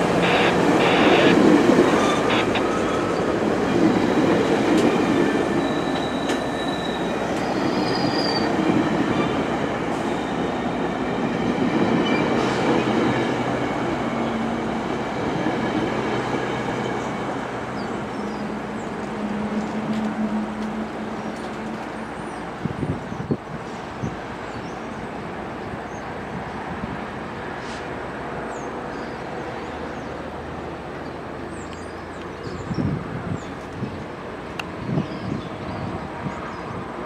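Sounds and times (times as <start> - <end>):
train wheels rumbling on rails: 0.0 - 25.4
approaching train hum: 0.0 - 37.0
high wheel squeal: 5.5 - 8.6.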